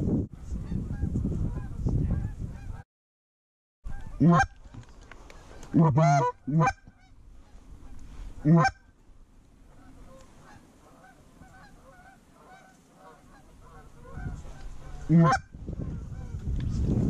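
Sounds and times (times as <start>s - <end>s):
microphone rumbling noise: 0.0s - 2.8s, 13.7s - 17.0s
goose honking: 3.9s - 4.6s, 5.5s - 8.9s, 9.7s - 16.3s.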